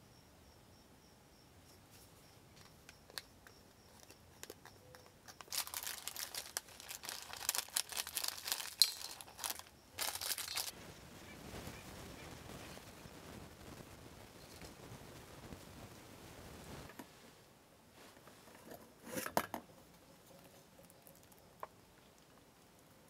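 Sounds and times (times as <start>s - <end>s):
plastic bag crinkling and rustling: 3.9s - 10.8s.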